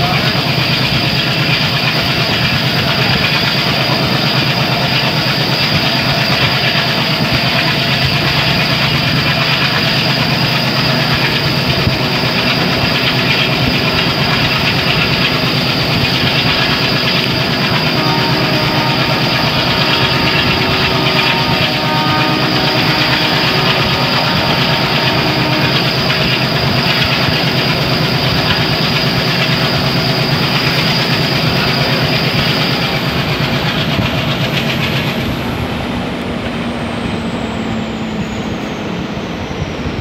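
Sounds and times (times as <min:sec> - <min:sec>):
turbocharger whistle: 0:00.0 - 0:34.0
diesel locomotive engine chugging: 0:00.0 - 0:40.0
train coaches running on rails: 0:00.0 - 0:40.0.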